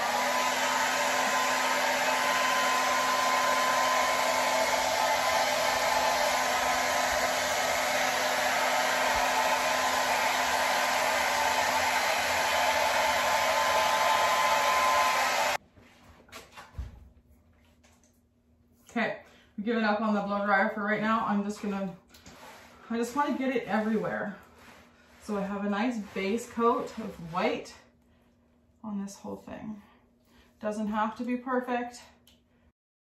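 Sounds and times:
hair dryer running: 0.0 - 15.6.

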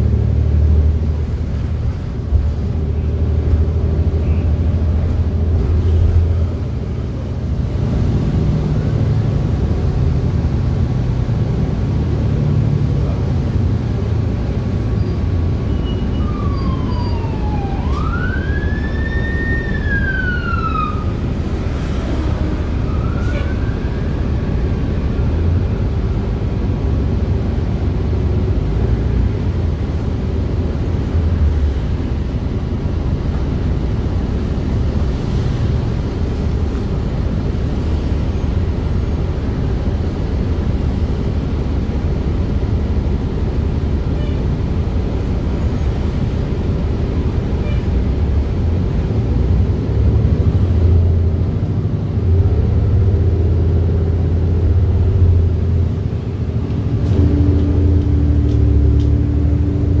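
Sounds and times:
bus engine low rumble: 0.0 - 60.0
siren wailing: 15.9 - 21.2, 22.7 - 24.6.

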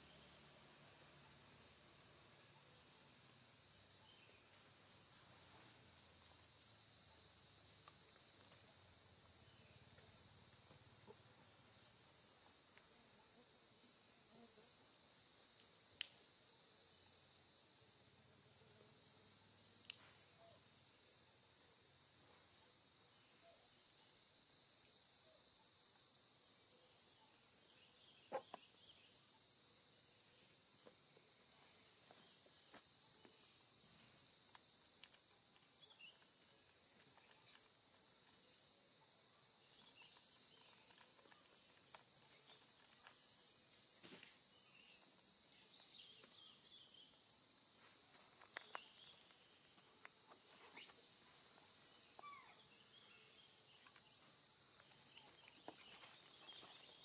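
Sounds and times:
insect chorus drone: 0.0 - 57.0
faint sharp clicks: 15.6 - 16.2, 19.8 - 20.1.

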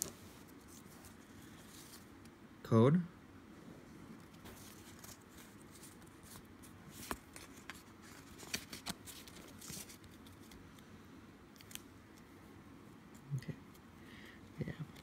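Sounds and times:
cards rustling and clicking: 4.2 - 10.8, 11.5 - 12.3.

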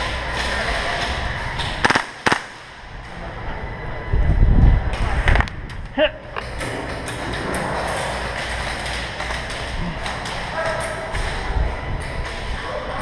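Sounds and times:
indoor arena background noise: 0.0 - 13.0
airsoft gunfire cracks: 1.8 - 2.6.

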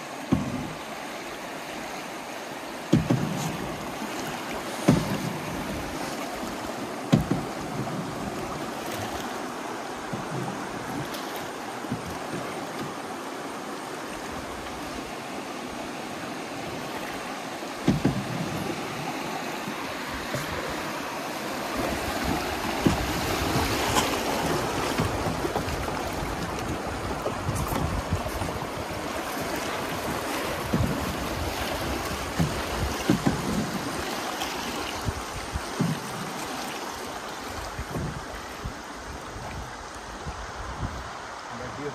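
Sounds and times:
river water rushing and splashing: 0.0 - 41.9
sharp splashes and knocks: 0.2 - 0.8, 2.8 - 13.2, 16.6 - 36.9, 37.8 - 38.3.

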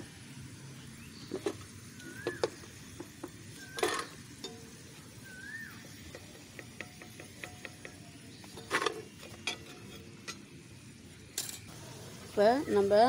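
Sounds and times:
bird whistling call: 1.9 - 2.6, 3.5 - 4.2, 5.2 - 6.0
ladle knocking against wok: 6.1 - 10.4.

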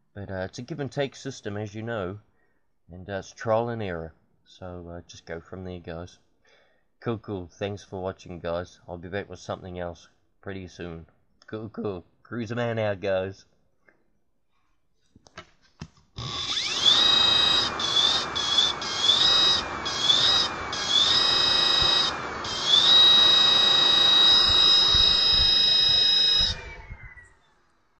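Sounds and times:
electric motor whine: 16.2 - 27.4.

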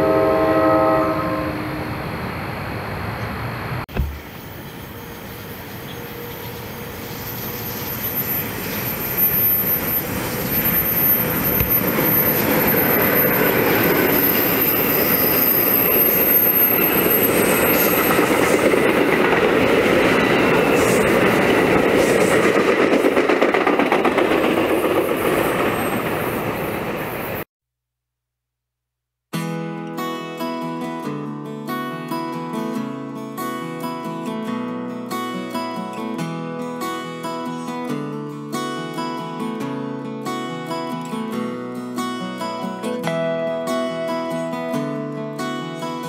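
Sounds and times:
thin high whine: 0.0 - 18.6
train wheels rumbling on rails: 2.9 - 27.5.

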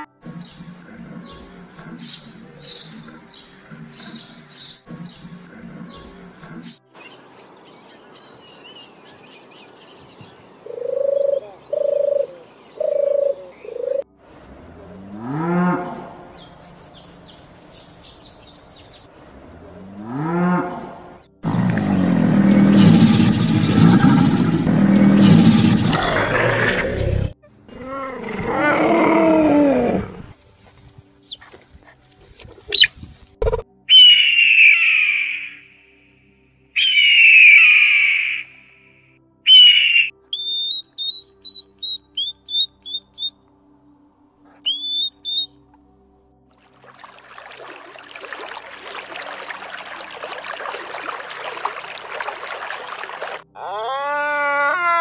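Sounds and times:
songbird chirps: 0.2 - 14.0, 14.7 - 24.0, 30.4 - 43.7, 44.6 - 46.1
loud roar-like animal call: 20.0 - 30.4
long rising and falling calls: 36.8 - 38.6, 39.5 - 43.3, 44.6 - 45.5
short arching animal calls: 39.5 - 43.3, 44.6 - 45.5.

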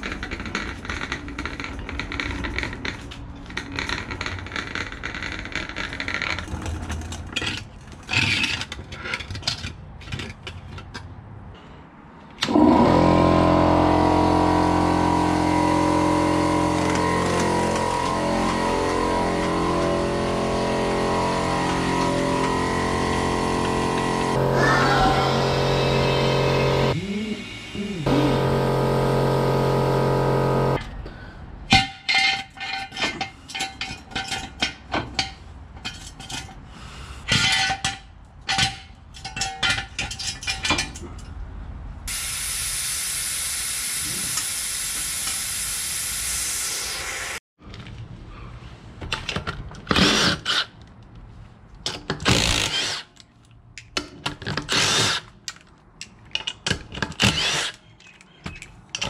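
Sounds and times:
impact wrench bursts: 12.4 - 30.8
clicks and clanks: 37.3 - 41.4, 50.8 - 59.0
air hissing from jack: 42.1 - 47.4.

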